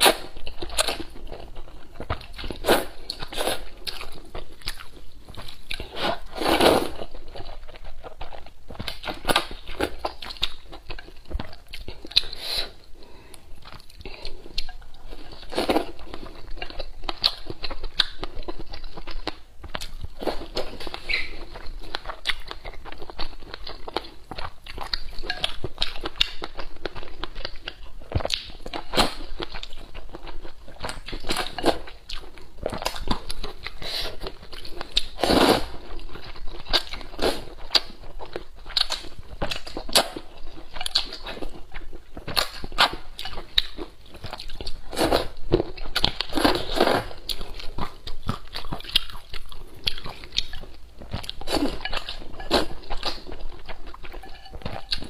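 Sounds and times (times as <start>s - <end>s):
slurping and chewing noodles: 0.0s - 55.0s.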